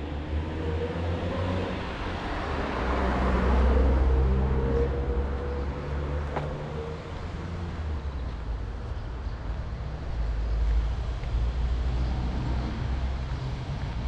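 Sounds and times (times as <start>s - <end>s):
car passing: 0.0s - 8.1s.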